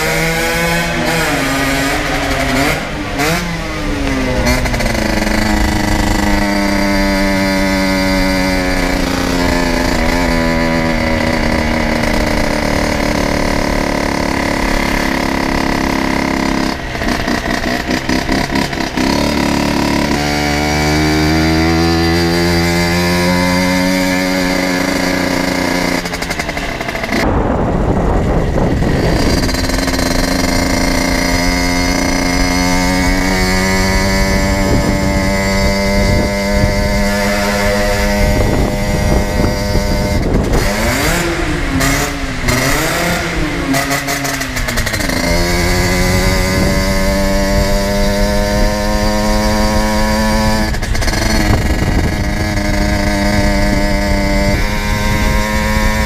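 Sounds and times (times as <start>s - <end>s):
two-stroke engine at high revs: 0.0s - 56.0s
wind rush on microphone: 21.4s - 56.0s.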